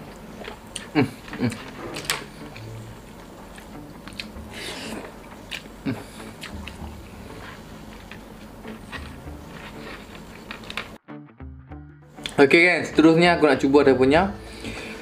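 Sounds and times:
person chewing and smacking: 0.0s - 1.8s, 2.5s - 11.0s.

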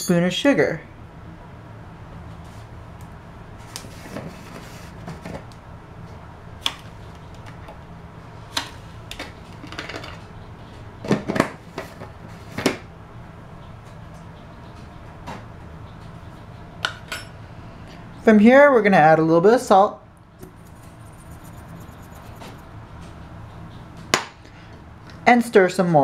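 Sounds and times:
low steady hum: 0.0s - 25.3s.

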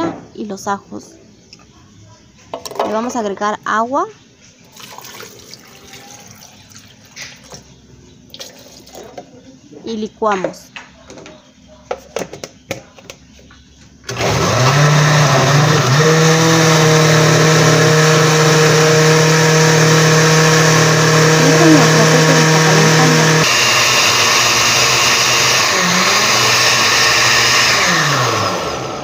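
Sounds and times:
blender motor running: 14.1s - 29.0s.

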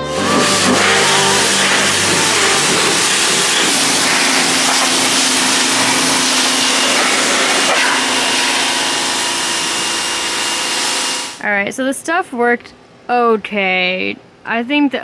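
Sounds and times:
pressure washer motor humming: 0.0s - 11.4s
water spray hissing on metal: 0.3s - 11.4s.

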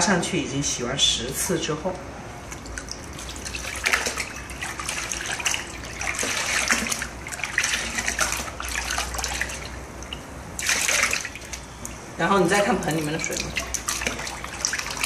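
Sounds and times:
water splashing in plastic basin: 2.4s - 15.0s
water streaming off hair: 2.8s - 11.6s.

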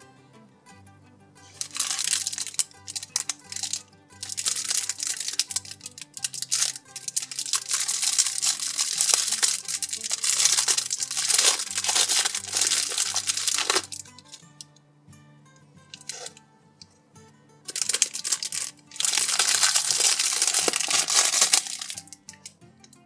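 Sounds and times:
background music: 0.0s - 23.0s
plastic film crinkling: 1.5s - 14.6s, 15.9s - 16.4s, 17.7s - 22.5s.

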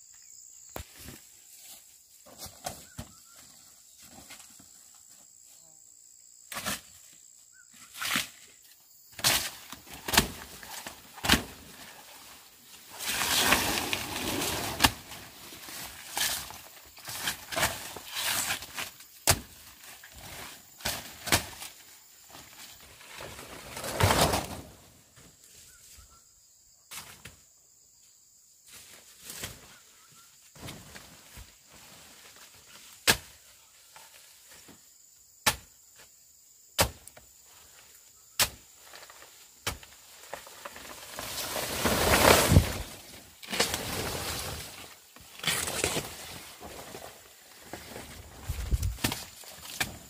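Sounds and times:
rustling and scraping: 9.2s - 19.0s, 22.4s - 24.9s, 38.8s - 50.0s.

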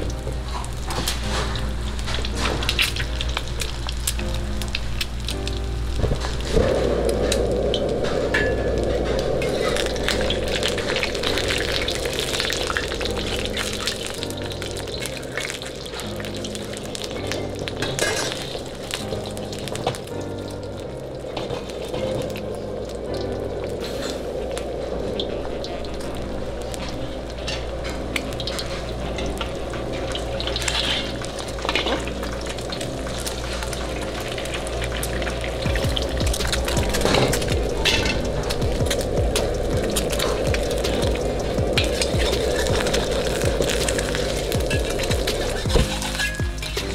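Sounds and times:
eggs sizzling in oil: 0.0s - 46.9s
steady low rumble: 1.6s - 15.9s, 22.2s - 46.9s.

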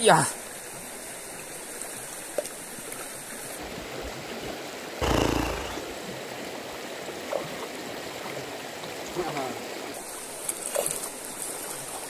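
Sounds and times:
brief loud burst of noise: 5.0s - 5.9s.

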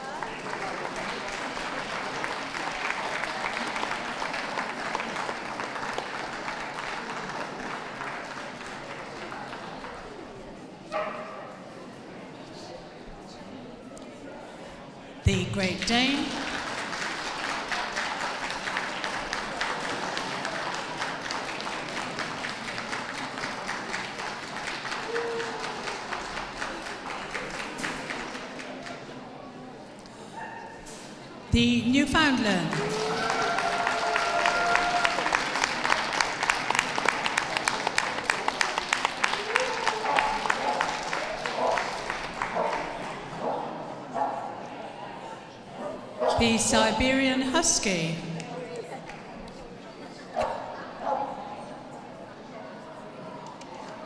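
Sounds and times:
audience applauding: 0.0s - 10.2s, 16.1s - 29.1s, 32.6s - 43.3s.

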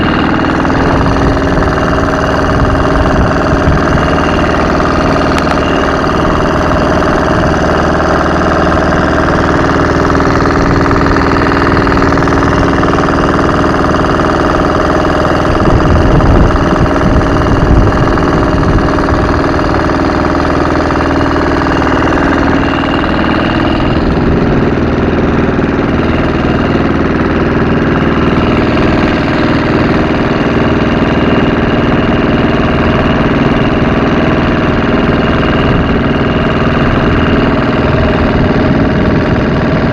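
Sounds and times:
low rumble: 0.0s - 30.1s
motorboat engine drone: 0.0s - 39.9s.

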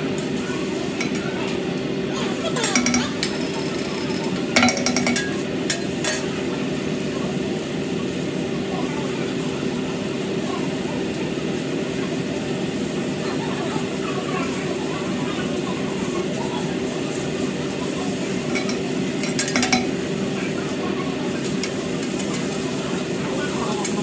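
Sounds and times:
steady hum: 0.0s - 24.0s
knife and spatula scraping steel: 18.4s - 20.0s.

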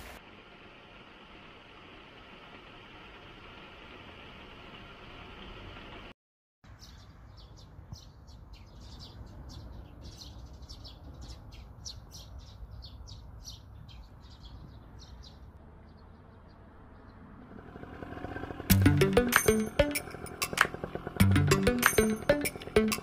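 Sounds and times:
birds chirping: 6.7s - 23.0s
low steady rumble: 17.2s - 23.0s.

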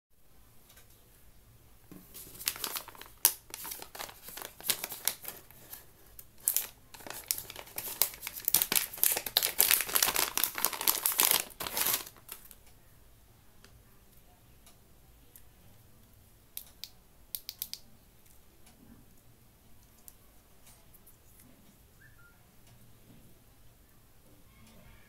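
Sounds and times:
plastic packaging crinkling: 2.0s - 12.6s.

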